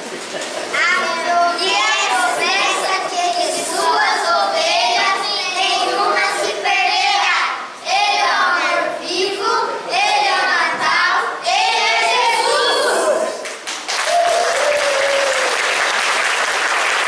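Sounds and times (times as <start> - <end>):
children singing together: 0.7 - 13.4.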